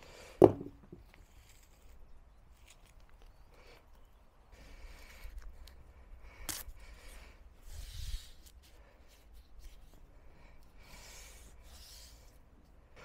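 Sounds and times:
dull knock: 0.4 - 0.8
tape scratching and rubbing: 1.0 - 3.4, 7.6 - 10.0.

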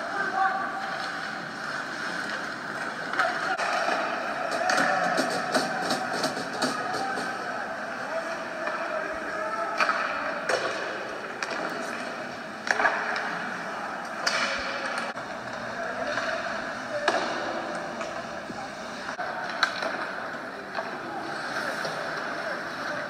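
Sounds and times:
sticks and puck clacking: 0.1 - 7.4, 8.2 - 18.4, 19.0 - 23.0
faint murmur of voices: 2.3 - 23.0
skates scraping ice: 15.4 - 23.0.

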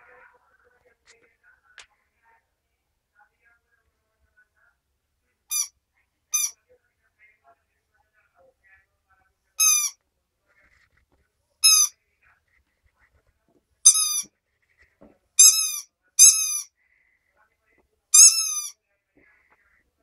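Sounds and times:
chew toy squeaking: 5.5 - 5.7, 6.3 - 6.6, 9.6 - 10.0, 11.6 - 11.9, 13.8 - 14.3, 15.4 - 16.7, 18.1 - 18.8.

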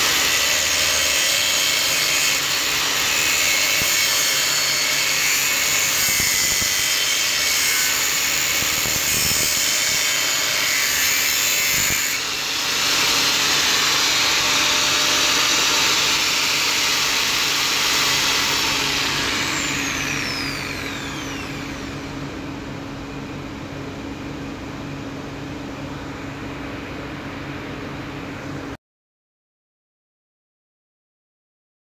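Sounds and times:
angle grinder cutting steel: 0.0 - 22.1
motor winding down: 0.0 - 22.3
low hum and hiss: 20.2 - 28.8.

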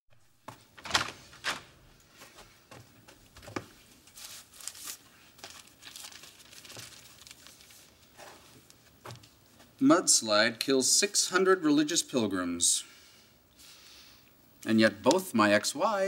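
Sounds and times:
newspaper pages rustling: 0.6 - 1.7, 3.4 - 9.7.

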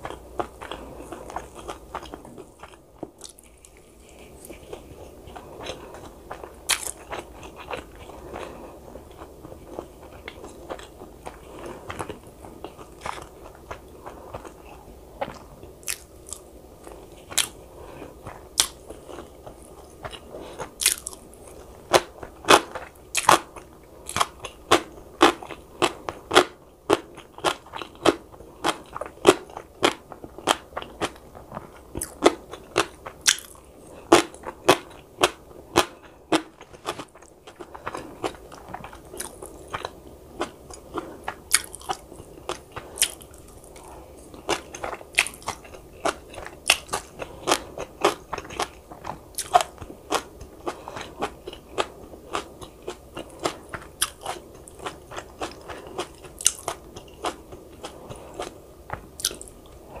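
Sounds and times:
person chewing with crisp crunches: 0.0 - 60.0.

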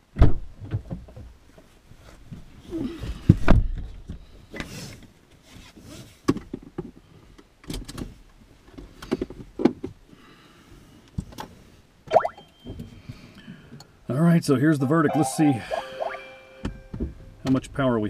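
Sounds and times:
steady high beep: 14.8 - 17.3
short rising tone: 14.9 - 17.4.

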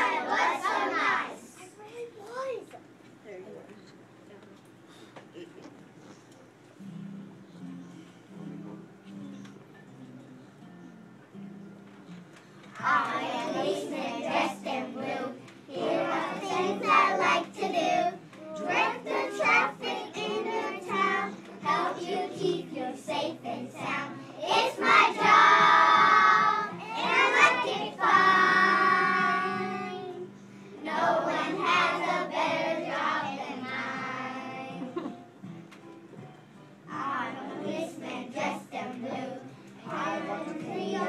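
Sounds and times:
children singing in unison: 0.0 - 1.5, 12.8 - 34.9, 36.9 - 41.0.

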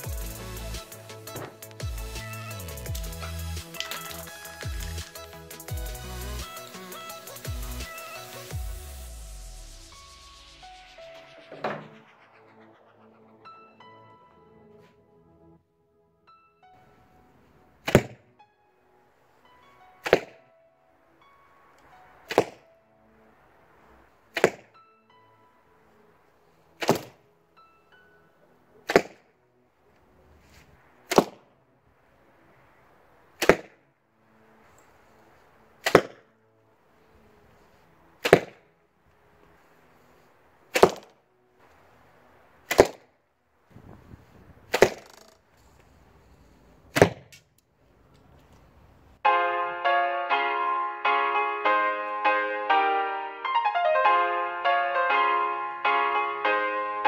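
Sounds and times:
arrows striking target: 1.3 - 1.8, 2.8 - 4.4, 11.2 - 13.1, 17.8 - 18.2, 20.0 - 20.3, 22.3 - 22.6, 24.3 - 24.7, 26.8 - 27.2, 28.9 - 29.2, 31.1 - 31.4, 33.4 - 33.8, 35.8 - 36.3, 38.2 - 38.6, 40.7 - 41.2, 42.7 - 43.0, 44.7 - 45.4, 46.9 - 47.5.

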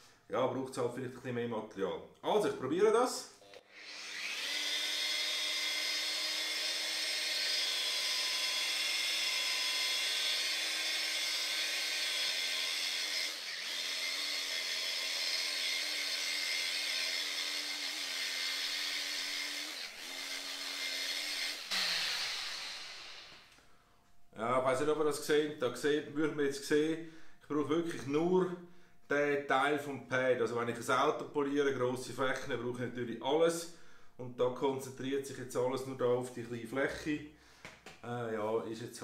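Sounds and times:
electric polishing machine whine: 3.4 - 23.5.

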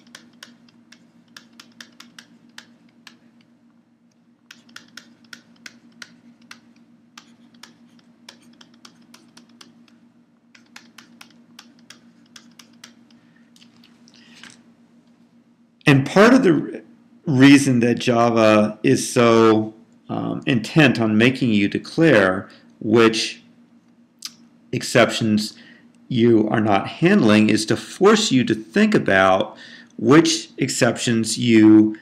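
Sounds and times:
stylus tapping on tablet: 4.5 - 10.0.

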